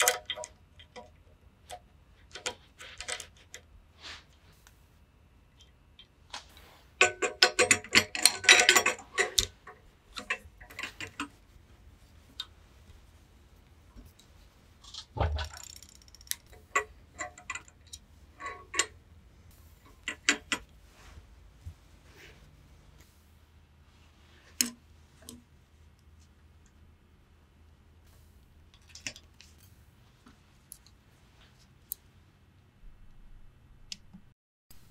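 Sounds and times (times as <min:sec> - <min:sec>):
metal tool clinking and rattling: 0:07.0 - 0:11.4.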